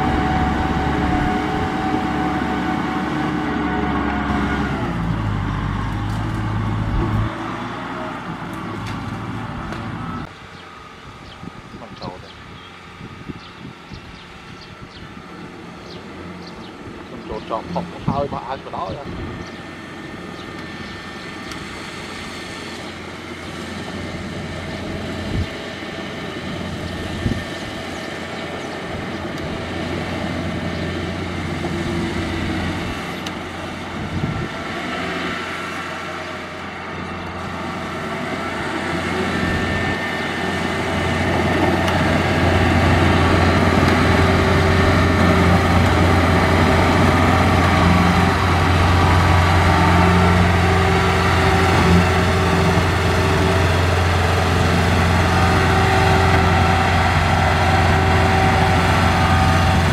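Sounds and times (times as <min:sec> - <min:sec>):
diesel engine running: 0:00.0 - 0:59.9
machine tracks through mud: 0:17.1 - 0:59.9.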